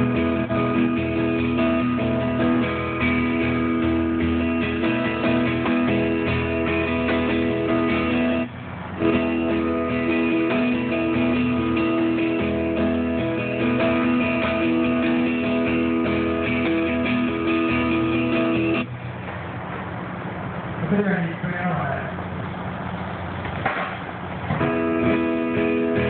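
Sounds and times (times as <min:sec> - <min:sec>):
guitar chords through pa: 0:00.0 - 0:18.9, 0:24.5 - 0:26.0.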